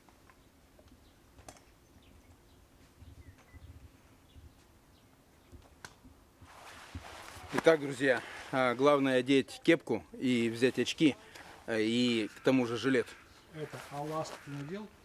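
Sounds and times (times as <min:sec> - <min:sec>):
faint bird chirps: 0:01.8 - 0:05.1.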